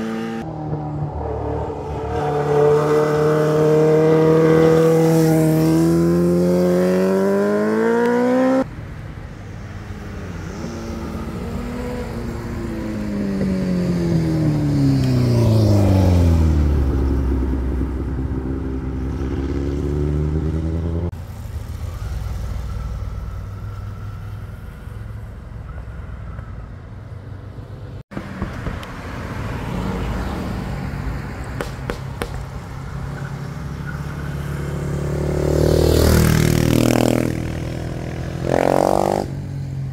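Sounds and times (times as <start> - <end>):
motorcycle engine accelerating: 0.0 - 8.6, 10.5 - 24.4, 34.5 - 39.5
vehicles on the road: 0.0 - 39.9.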